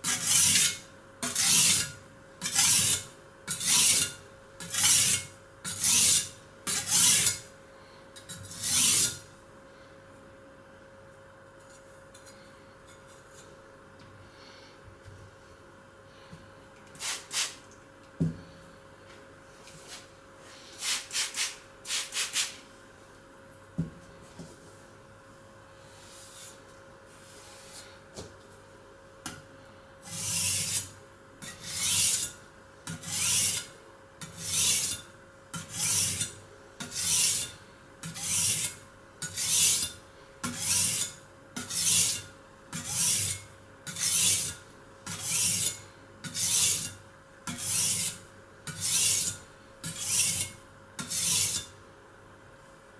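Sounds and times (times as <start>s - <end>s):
cleaver scraping on sharpening stone: 0.0s - 7.5s, 8.2s - 9.2s, 30.1s - 51.7s.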